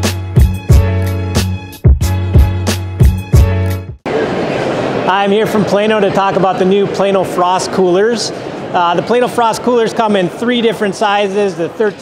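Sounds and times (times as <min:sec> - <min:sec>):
intro music with strong bass line: 0:00.0 - 0:04.0.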